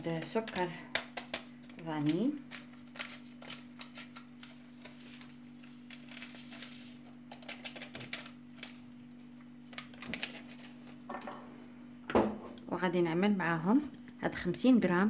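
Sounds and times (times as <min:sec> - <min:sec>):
low electrical hum: 0:00.0 - 0:15.0
paper sachet crinkling: 0:01.2 - 0:10.9.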